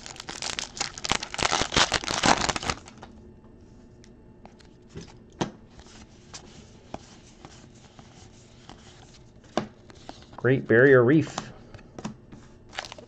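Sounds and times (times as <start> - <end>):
card pack wrapper tearing and crinkling: 0.0 - 3.1, 12.7 - 13.0.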